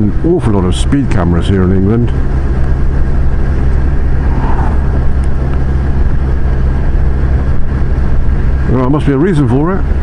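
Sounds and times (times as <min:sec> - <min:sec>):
road and wind noise: 0:00.0 - 0:10.0
motorcycle engine cruising: 0:01.0 - 0:08.8.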